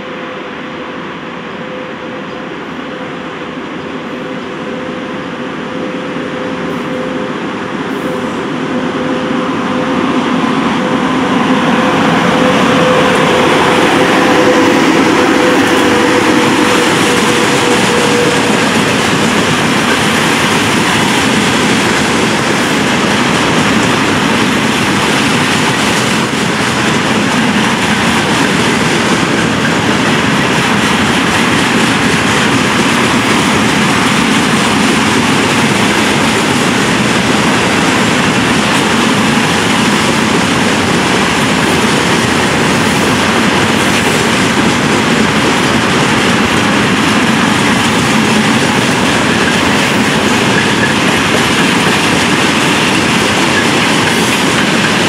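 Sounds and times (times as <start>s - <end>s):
steady whine: 0.0s - 41.8s
train rumbling past: 0.0s - 55.0s.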